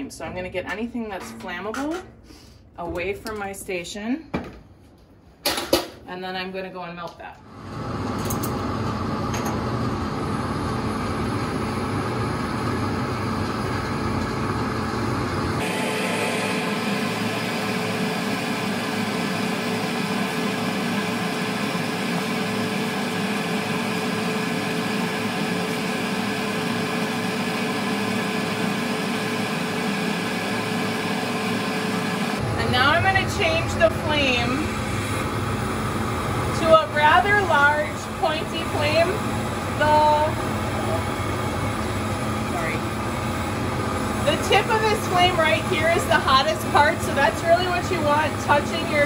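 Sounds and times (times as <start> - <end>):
ventilation fan humming: 0.0 - 49.0
torch flame hissing: 29.6 - 49.0.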